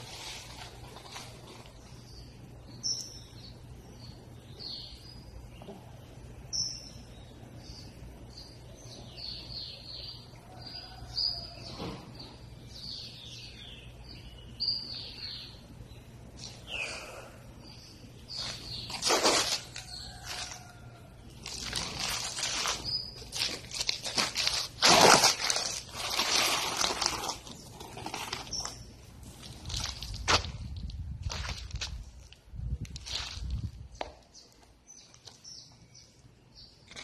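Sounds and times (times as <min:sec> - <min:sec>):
small birds chirping: 0:00.0 - 0:24.7, 0:26.8 - 0:30.3
low steady hum: 0:00.0 - 0:37.0.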